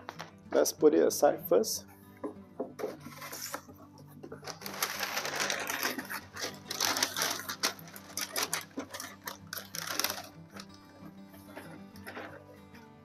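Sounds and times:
packaging rustling and crinkling: 3.0 - 3.7, 4.3 - 12.5.

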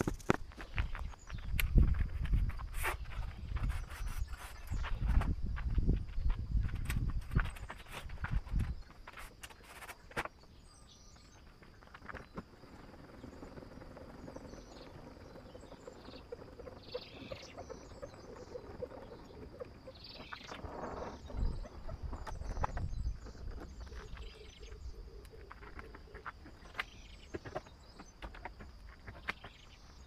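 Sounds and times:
birds chirping: 0.0 - 30.0
faint high insect tone: 0.0 - 30.0.

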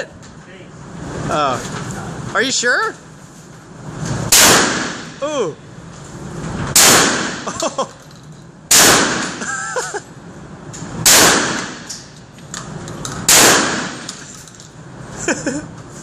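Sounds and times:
shotgun shots: 4.3 - 5.2, 6.7 - 7.5, 8.7 - 9.4, 11.0 - 11.9, 13.2 - 14.2.

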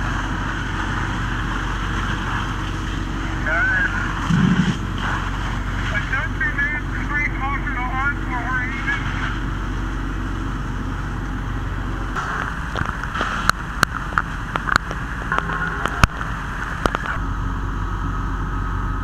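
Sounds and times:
fire engine pump droning: 0.0 - 19.0
hose water spray hissing: 12.2 - 15.3
sharp cracks and snaps: 12.2 - 17.2.

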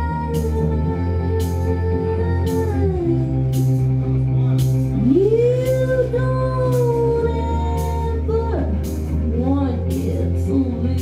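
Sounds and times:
woman singing lead vocal: 0.0 - 4.0, 4.9 - 11.0
rock band playing live: 0.0 - 11.0
sustained bass note: 0.0 - 11.0.

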